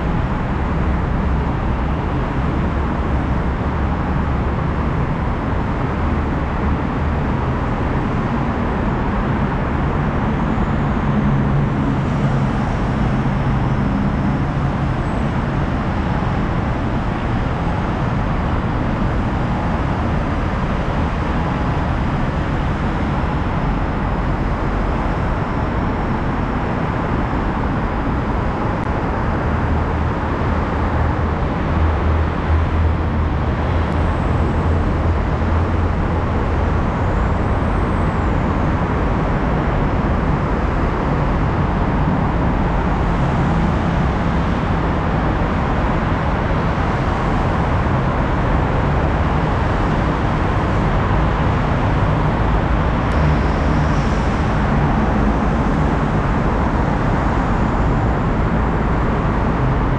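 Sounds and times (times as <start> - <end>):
busy road traffic: 0.0 - 59.9
deep engine drone: 0.0 - 59.9.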